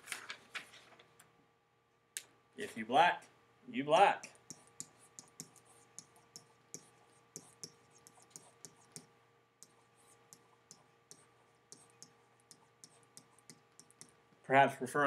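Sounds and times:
faint electrical hum: 0:00.0 - 0:15.0
stylus clicking on writing surface: 0:04.3 - 0:14.2.

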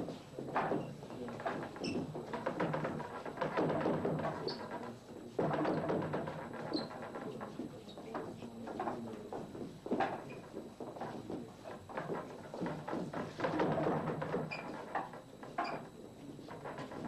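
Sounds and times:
hubbub of people training: 0:00.0 - 0:17.0
wooden knocks on training dummies: 0:00.0 - 0:17.0.

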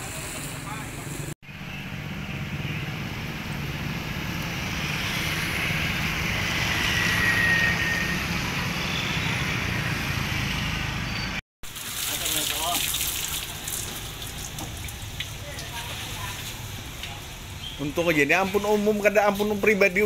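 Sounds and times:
tyre hiss on wet street: 0:00.0 - 0:01.3, 0:11.7 - 0:17.7.

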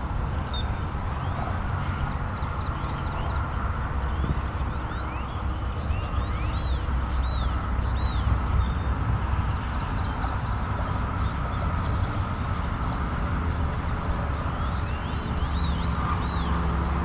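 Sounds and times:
low outdoor rumble: 0:00.0 - 0:17.0
bird chirping: 0:13.8 - 0:17.0.

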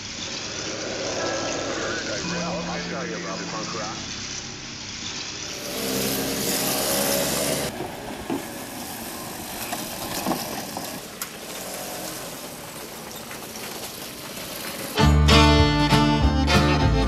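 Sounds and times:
moped engine running: 0:05.4 - 0:15.4.

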